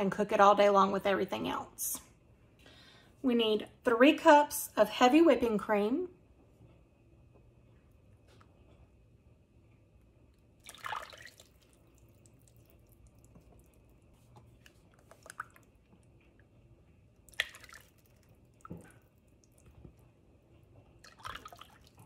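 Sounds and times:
cream pouring and splashing: 0:10.6 - 0:15.8, 0:17.2 - 0:19.8, 0:21.0 - 0:22.0.

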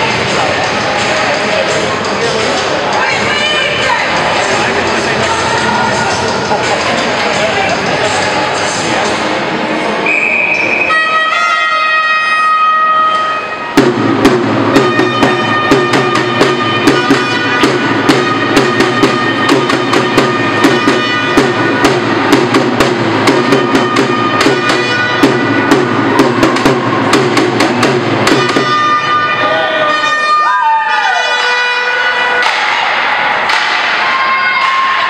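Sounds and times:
bass line: 0:13.7 - 0:29.6
steady drum beat: 0:13.8 - 0:29.1.

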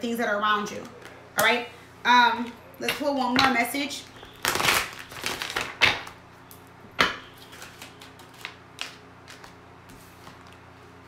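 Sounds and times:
cards rustling: 0:07.4 - 0:10.7.

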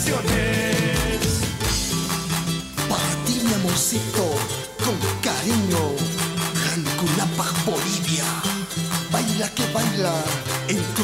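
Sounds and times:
drum strokes: 0:00.0 - 0:02.6
bass notes: 0:00.0 - 0:06.6
acoustic guitar strumming: 0:00.0 - 0:11.0
sliding melody line: 0:00.0 - 0:11.0.

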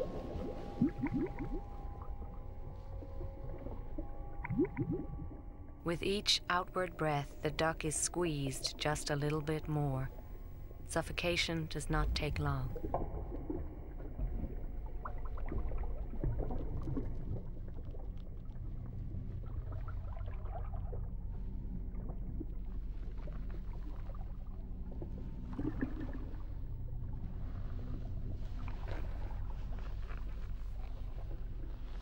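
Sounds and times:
water sloshing and splashing: 0:00.0 - 0:05.4, 0:12.2 - 0:32.0
low steady rumble: 0:00.0 - 0:32.0.

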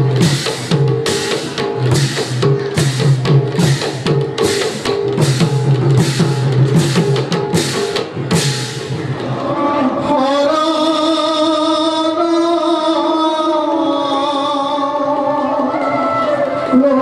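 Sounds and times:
barrel drum driving rhythm: 0:00.0 - 0:09.3.

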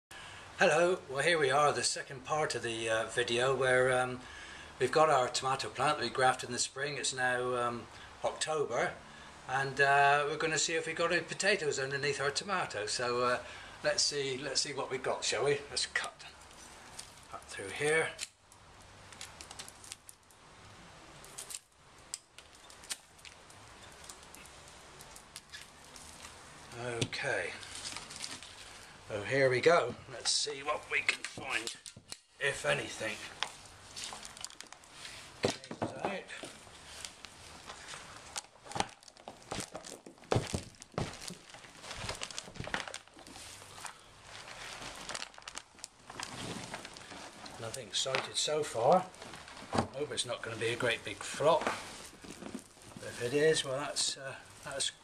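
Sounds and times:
faint hiss: 0:00.1 - 0:38.8, 0:46.1 - 0:55.0
plastic pot crinkling and scraping: 0:15.8 - 0:20.3, 0:21.2 - 0:29.0, 0:29.6 - 0:55.0.

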